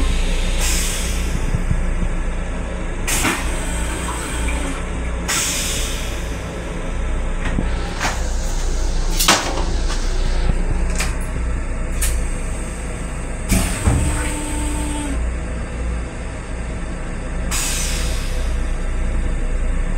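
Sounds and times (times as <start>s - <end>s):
railcar low rumble: 0.0s - 19.9s.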